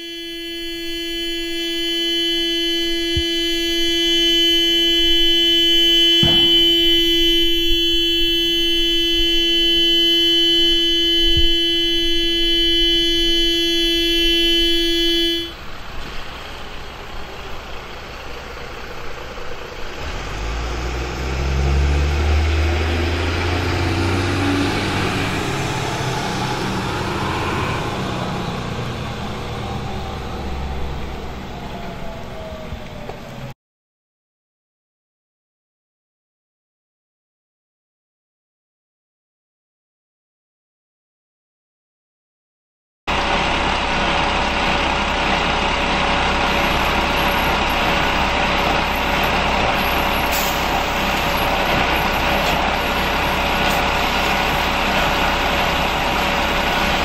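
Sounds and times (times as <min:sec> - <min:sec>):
car horn steady tone: 0:00.0 - 0:15.8, 0:46.6 - 0:57.0.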